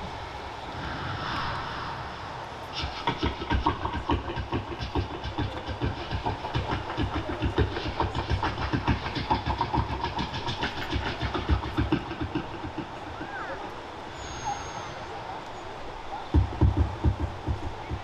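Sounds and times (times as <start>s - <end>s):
low thumps: 16.4s - 18.0s.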